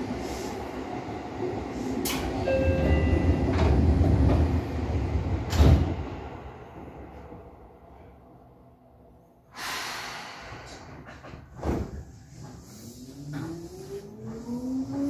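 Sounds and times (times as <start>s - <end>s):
train rumble: 0.0s - 15.0s
train doors sliding: 1.6s - 7.7s, 9.6s - 15.0s.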